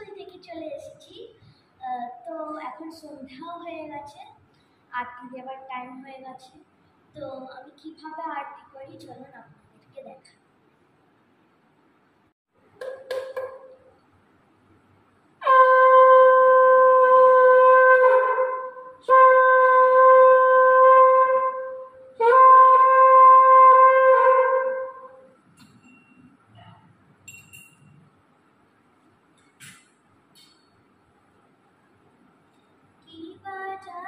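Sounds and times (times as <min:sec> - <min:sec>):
conch shell blasts: 0:15.4 - 0:25.3.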